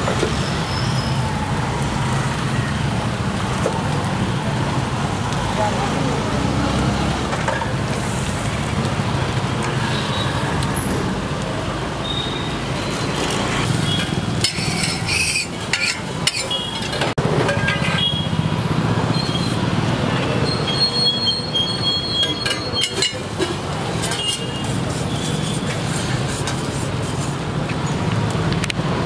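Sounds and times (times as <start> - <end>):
street noise: 0.0 - 29.0
metal spatula scraping a griddle: 12.9 - 17.0, 22.2 - 27.4.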